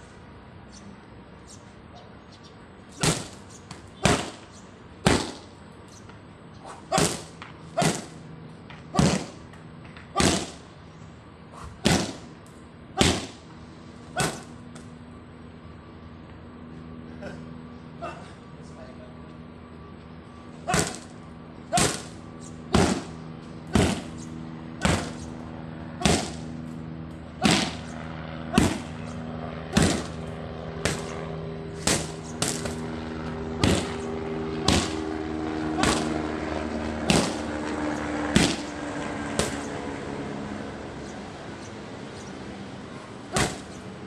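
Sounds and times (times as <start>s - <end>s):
steady low hum: 0.0s - 44.0s
punches and kicks on pads: 3.0s - 4.4s, 5.0s - 5.5s, 6.7s - 8.2s, 8.8s - 10.6s, 11.6s - 12.3s, 13.0s - 13.4s, 14.1s - 14.5s, 20.6s - 21.1s, 21.7s - 22.1s, 22.7s - 24.2s, 24.8s - 25.2s, 26.0s - 26.4s, 27.4s - 27.8s, 28.5s - 29.0s, 29.7s - 30.2s, 30.8s - 31.2s, 31.8s - 32.8s, 33.6s - 34.0s, 34.6s - 35.0s, 35.8s - 36.2s, 37.0s - 37.5s, 38.3s - 38.7s, 39.4s - 39.7s, 43.3s - 43.8s.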